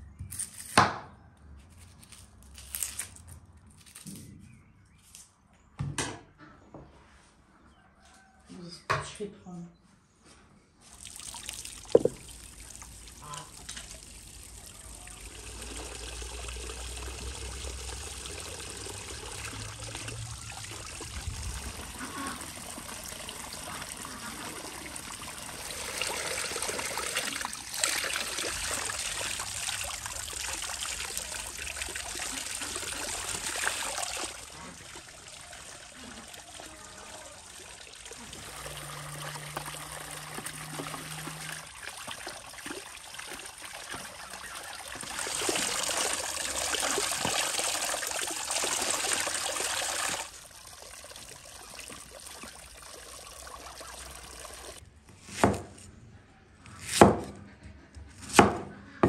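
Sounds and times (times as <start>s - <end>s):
water splashing into basin: 10.8s - 54.8s.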